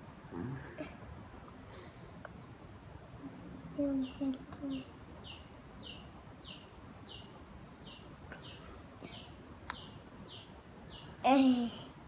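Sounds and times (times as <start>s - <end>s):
bird chirping: 3.9s - 11.4s.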